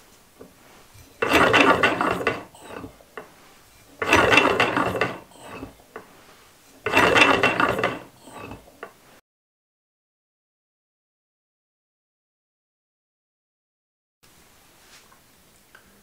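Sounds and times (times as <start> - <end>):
engine gears clicking rattle: 1.0 - 6.2, 6.8 - 9.0.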